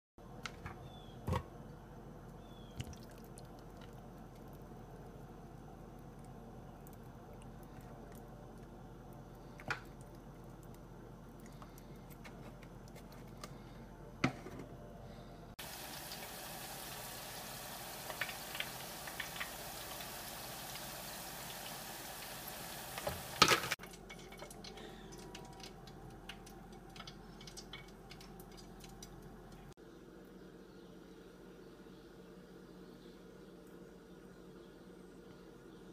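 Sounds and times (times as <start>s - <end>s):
fries sizzling in hot oil: 15.6s - 29.2s.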